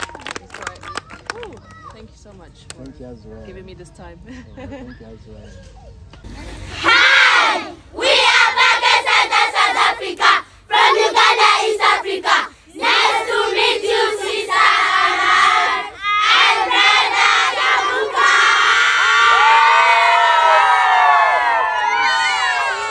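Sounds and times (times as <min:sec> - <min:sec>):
children shouting and cheering: 0:00.0 - 0:02.2, 0:05.6 - 0:22.9
children chanting: 0:06.8 - 0:19.3.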